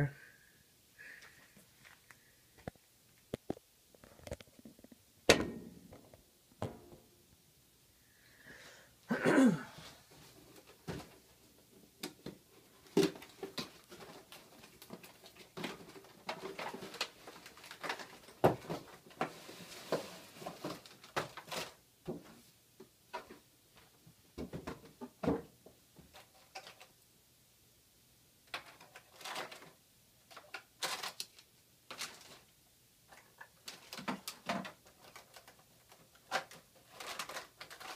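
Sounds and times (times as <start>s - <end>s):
packaging rustling and scraping: 12.8s - 21.8s, 28.5s - 32.5s, 33.2s - 37.9s.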